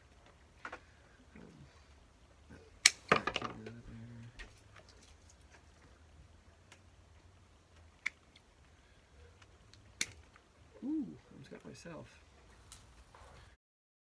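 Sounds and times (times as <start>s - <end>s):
twigs rustling: 2.8s - 6.0s, 6.6s - 13.5s.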